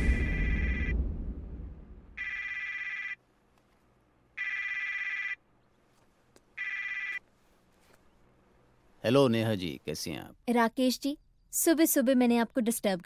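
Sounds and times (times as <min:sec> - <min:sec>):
low rumble: 0:00.0 - 0:02.5.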